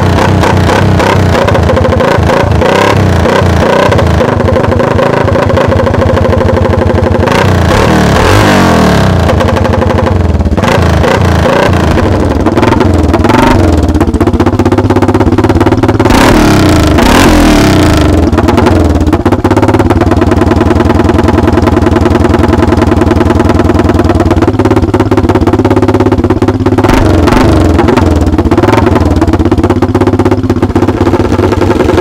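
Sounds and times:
dirt bike engine revving: 0.0 - 14.0, 16.0 - 19.0, 26.8 - 29.3, 30.7 - 32.0.

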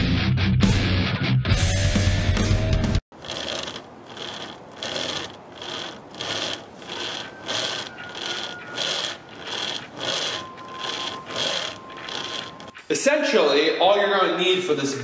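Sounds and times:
chain saw rasping through wood: 3.1 - 12.8.

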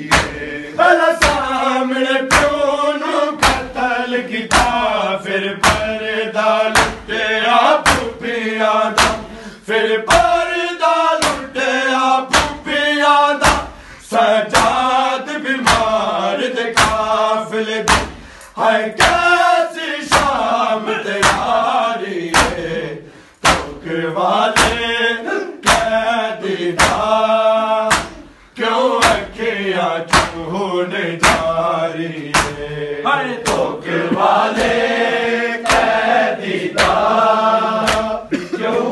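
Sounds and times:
hand slaps on bare chests: 0.0 - 0.5, 1.2 - 1.6, 2.3 - 2.6, 3.4 - 3.8, 4.5 - 5.0, 5.6 - 7.2, 7.8 - 8.2, 8.9 - 9.4, 10.1 - 10.5, 11.2 - 11.5, 12.3 - 12.8, 13.4 - 13.8, 14.5 - 15.0, 15.6 - 16.1, 16.8 - 17.2, 17.8 - 19.4, 20.0 - 22.7, 23.3 - 23.8, 24.5 - 25.0, 25.6 - 26.0, 26.7 - 27.2, 27.8 - 28.3, 29.0 - 29.4, 30.1 - 30.5, 31.2 - 32.7, 33.4 - 38.2
men chanting together: 0.0 - 38.9.

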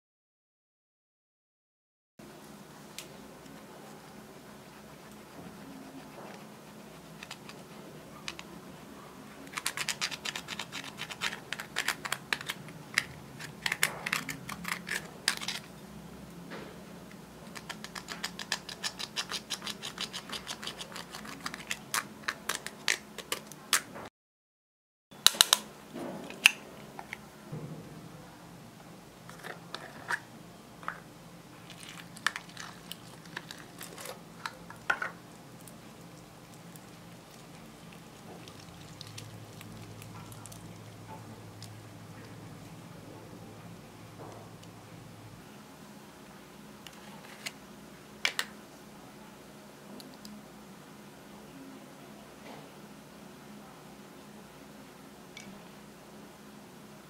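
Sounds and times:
tool scraping and chipping makeup: 4.6 - 8.5, 9.5 - 15.7, 17.4 - 23.4.

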